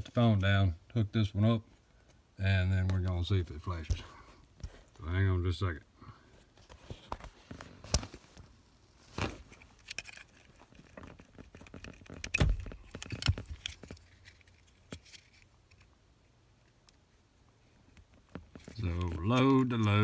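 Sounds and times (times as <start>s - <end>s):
handling clicks knocks and rustles: 9.1s - 15.9s, 17.8s - 20.0s.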